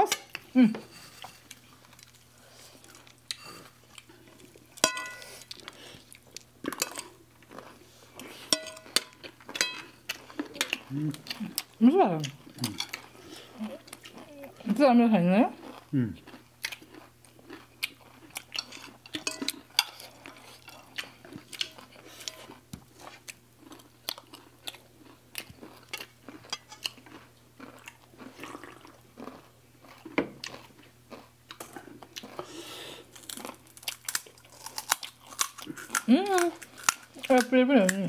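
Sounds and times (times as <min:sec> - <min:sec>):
people crunching and chewing: 0:00.0 - 0:14.8, 0:15.4 - 0:38.0
spoons clicking on plates: 0:04.8 - 0:05.3, 0:08.5 - 0:09.9.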